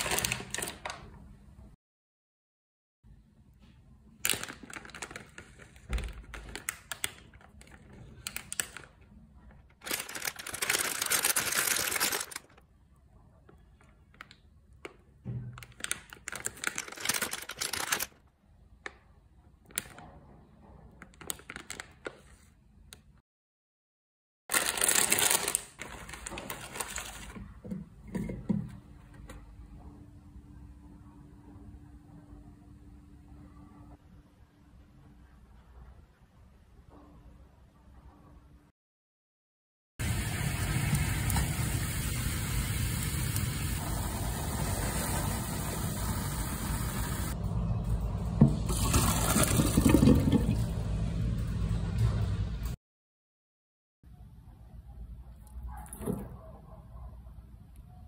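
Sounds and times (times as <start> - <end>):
plastic wrapper tearing and crinkling: 0.0 - 1.0, 4.2 - 9.0, 9.7 - 12.6, 15.6 - 18.2, 21.1 - 22.1, 24.5 - 27.4
water boiling in a pan: 40.0 - 47.4.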